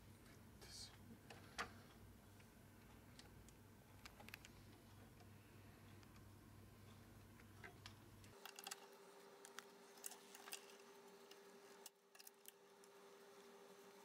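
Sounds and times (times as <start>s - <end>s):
steady faint hum: 0.0s - 14.0s.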